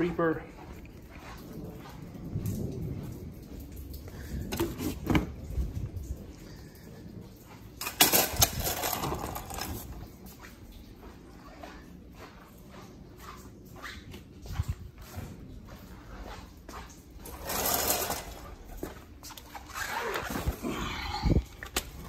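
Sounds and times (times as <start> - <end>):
scuffing and rattling: 7.4 - 22.0
metal clatter: 7.8 - 10.1, 17.2 - 18.8.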